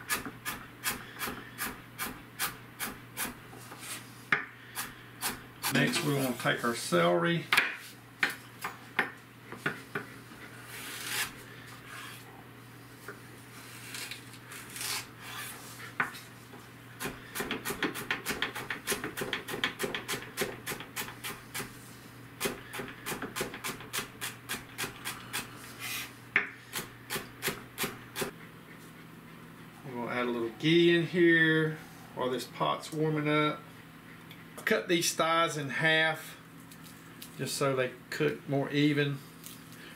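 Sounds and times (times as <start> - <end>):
knife chopping celery on board: 17.0 - 21.7.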